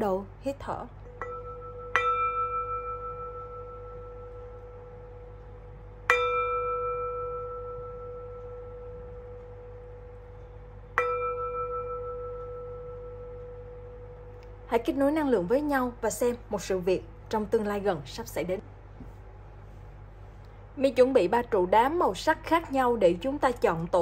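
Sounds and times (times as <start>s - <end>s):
singing bowl ringing: 1.0s - 14.7s.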